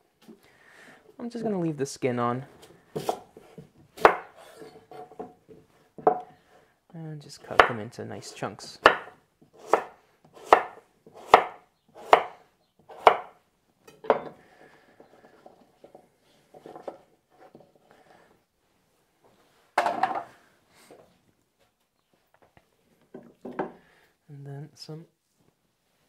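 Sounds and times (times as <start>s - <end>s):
knife chopping on wooden board: 3.0s - 4.4s, 7.5s - 7.8s, 8.8s - 13.4s.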